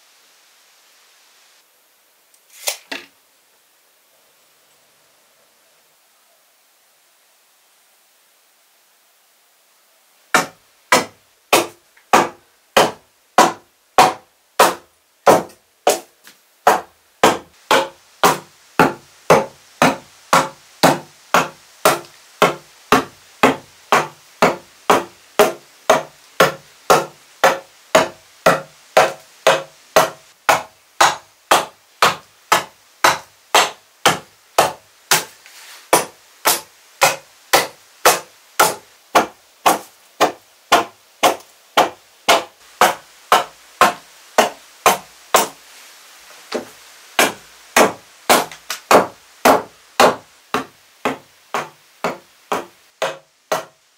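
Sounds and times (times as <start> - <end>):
axe chopping wood: 10.4 - 16.1, 16.7 - 35.3, 35.9 - 45.6, 46.5 - 53.8.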